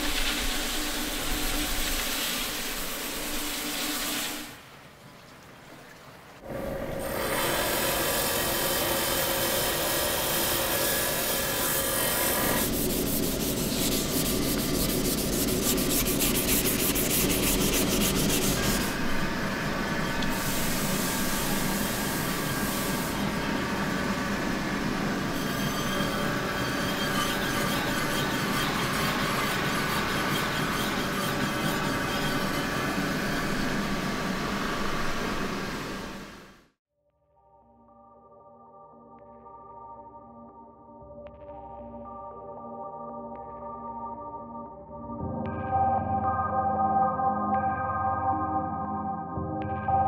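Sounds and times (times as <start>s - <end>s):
machine motor running: 6.5s - 36.6s
stone grinding on polishing wheel: 7.1s - 19.2s, 25.2s - 35.7s.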